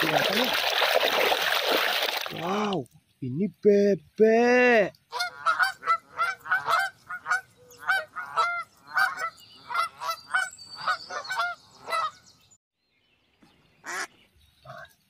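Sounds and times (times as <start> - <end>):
geese honking: 5.1 - 12.2.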